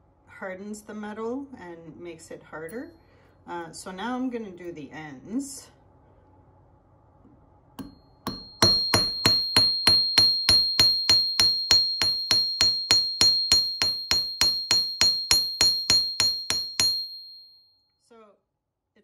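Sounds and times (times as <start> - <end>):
hammer striking metal on anvil: 7.8 - 17.4.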